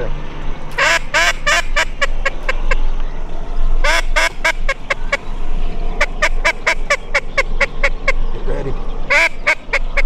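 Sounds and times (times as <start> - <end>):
low wind rumble: 0.0 - 10.0
duck call quacks: 0.8 - 2.7, 3.8 - 5.2, 9.1 - 10.0.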